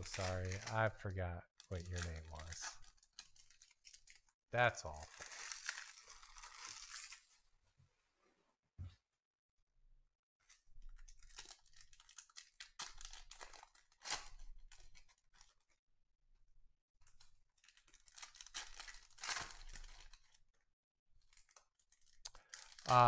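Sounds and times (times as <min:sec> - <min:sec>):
cards rustling in hands: 0:00.0 - 0:04.2, 0:04.9 - 0:07.4, 0:10.4 - 0:15.8, 0:21.2 - 0:23.0
foil wrappers crinkling and tearing: 0:00.0 - 0:07.4, 0:10.5 - 0:15.8, 0:17.1 - 0:20.5, 0:21.2 - 0:23.0.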